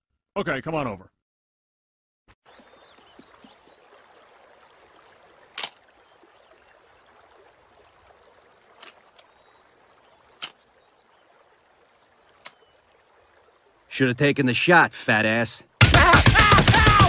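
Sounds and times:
stream trickling: 2.4 - 15.8.

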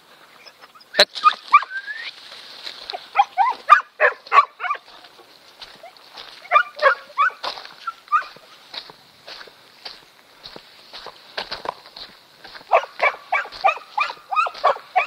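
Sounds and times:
dog whining and yelping: 0.4 - 2.1, 3.1 - 4.8, 5.8 - 8.4, 12.7 - 15.0.

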